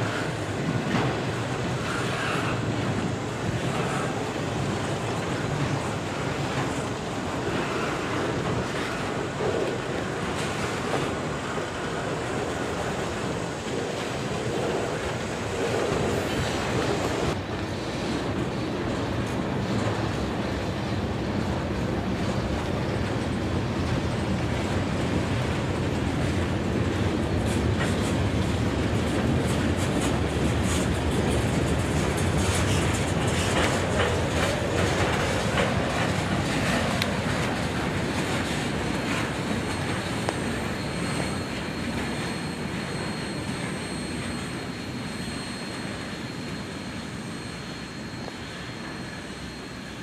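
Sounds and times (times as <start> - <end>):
train wheels clattering on rails: 0.0 - 50.0.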